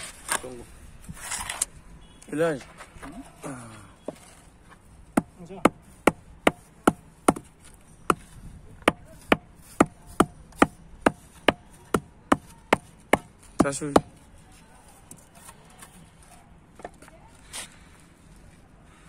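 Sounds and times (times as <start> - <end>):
hammer knocking on wooden block: 5.1 - 7.5, 8.1 - 14.2.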